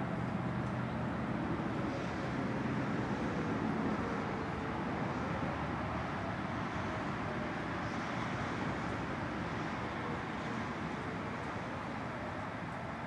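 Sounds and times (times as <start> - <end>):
distant tornado sirens: 0.0 - 13.0
rushing background noise: 0.0 - 13.0.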